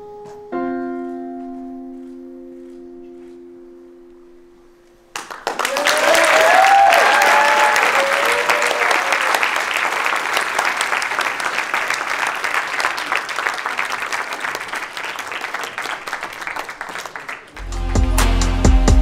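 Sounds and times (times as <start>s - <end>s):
audience clapping: 5.1s - 18.2s
people cheering: 5.2s - 17.7s.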